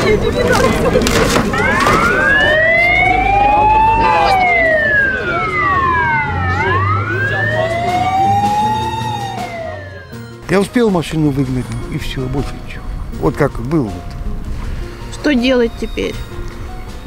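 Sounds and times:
fire engine siren wailing: 1.5s - 10.3s.

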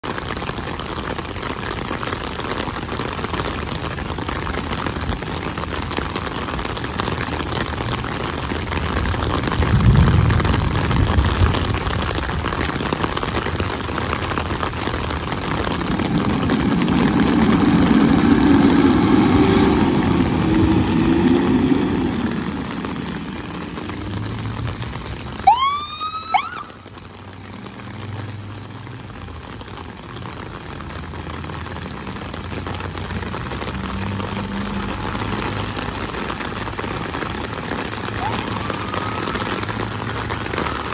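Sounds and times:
heavy rain on wet pavement: 0.0s - 40.9s
fire engine diesel rumbling: 7.1s - 40.9s
siren whoops: 25.4s - 26.9s, 38.1s - 40.9s.

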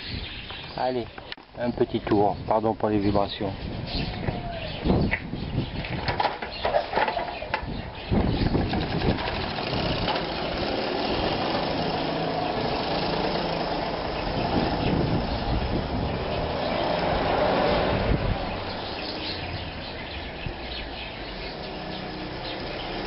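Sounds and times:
moped engine running: 8.4s - 19.8s.

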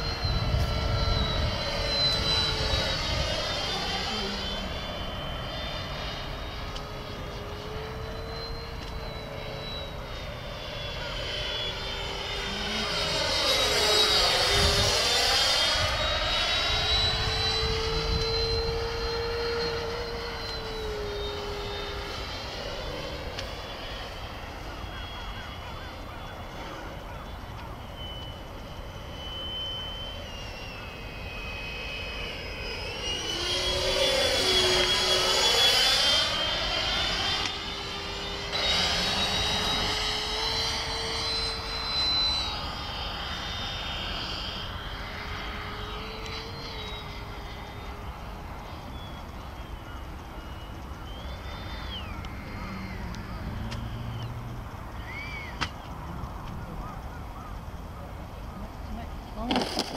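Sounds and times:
electric ducted fans whining: 0.0s - 59.9s
jet passing with sweeping whoosh: 0.0s - 59.9s.

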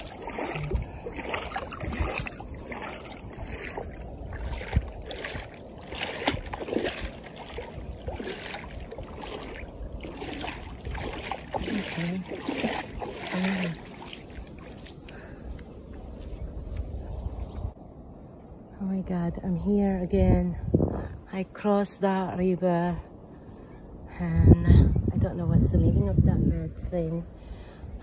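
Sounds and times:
footsteps wading through water: 0.0s - 17.8s.

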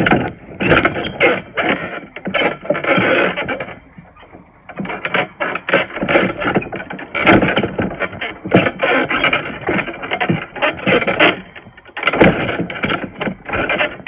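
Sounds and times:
trampoline springs squeaking: 0.0s - 14.0s
trampoline mat thudding: 4.9s - 14.0s.

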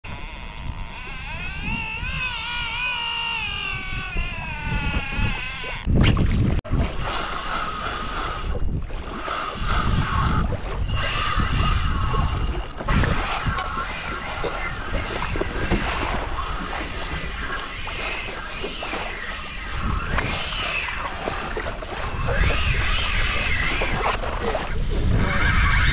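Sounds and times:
fishing reel drag screaming: 0.0s - 5.9s, 6.8s - 25.9s
water rushing: 6.6s - 24.8s.

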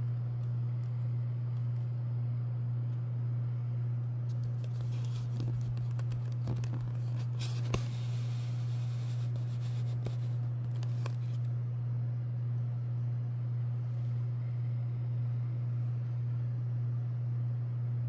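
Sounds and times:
turntable motor hum: 0.0s - 18.0s.

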